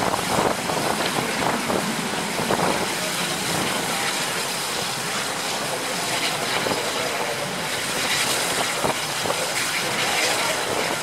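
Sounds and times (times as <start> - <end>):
wind rushing: 0.0 - 3.9
train wheels on rails: 0.0 - 11.0.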